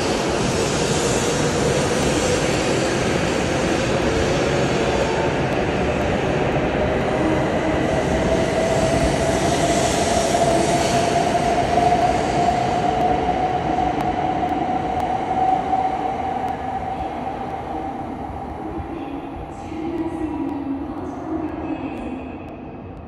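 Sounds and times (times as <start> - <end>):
train running noise: 0.0 - 23.0.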